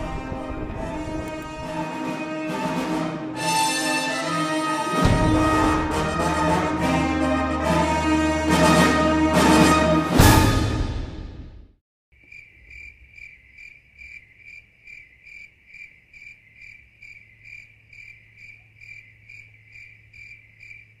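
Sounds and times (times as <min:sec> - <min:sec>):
orchestral final chord: 0:00.0 - 0:11.4
cricket chirping: 0:12.2 - 0:21.0.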